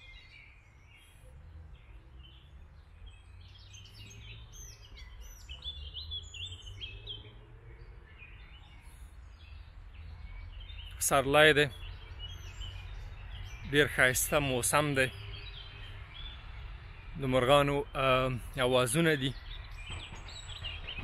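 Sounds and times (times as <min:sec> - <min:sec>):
songbirds singing: 0:00.0 - 0:21.0.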